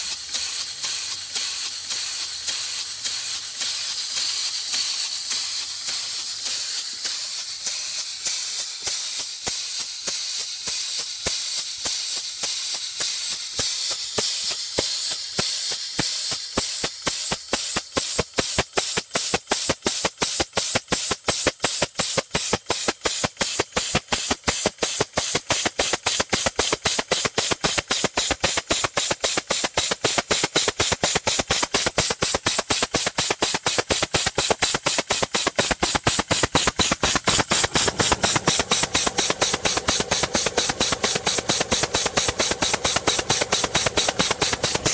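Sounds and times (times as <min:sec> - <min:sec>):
air engine exhaust chuffs: 0:00.0 - 0:44.9
air engine hissing: 0:22.4 - 0:44.9.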